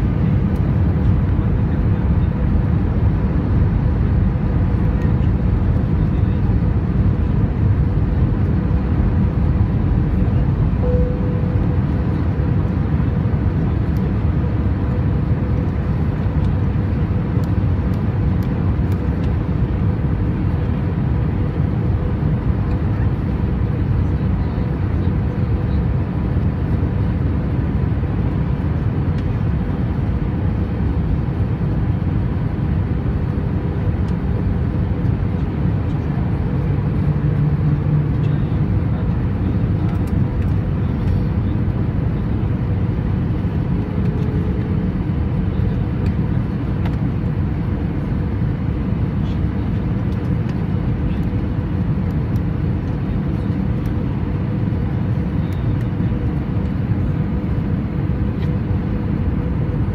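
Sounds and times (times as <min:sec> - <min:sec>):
airplane cabin engine rush: 0:00.0 - 0:59.9
faint steady hum: 0:00.0 - 0:59.9
low drone: 0:09.0 - 0:16.6.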